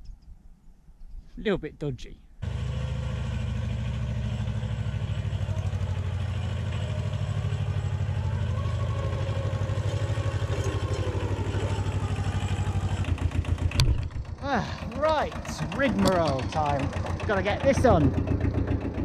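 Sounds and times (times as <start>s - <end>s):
tractor diesel engine chugging: 2.4s - 19.0s.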